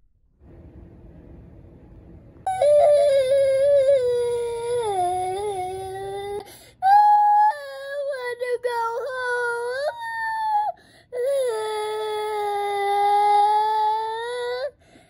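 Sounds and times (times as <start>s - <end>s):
faint low noise: 0.0s - 6.4s
girl crying aloud: 2.5s - 14.7s.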